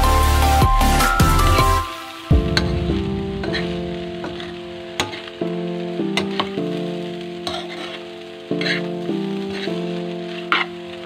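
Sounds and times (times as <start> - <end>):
background music with sustained chords: 0.0 - 11.0
light sizzle: 0.1 - 11.0
spatula scraping a pan: 7.5 - 8.0, 8.6 - 8.9.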